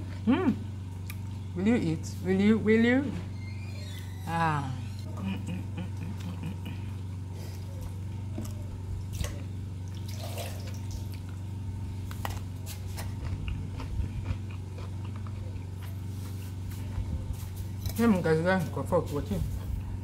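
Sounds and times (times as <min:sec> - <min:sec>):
steady low hum: 0:00.0 - 0:20.0
person chewing: 0:00.9 - 0:01.4, 0:12.0 - 0:17.0.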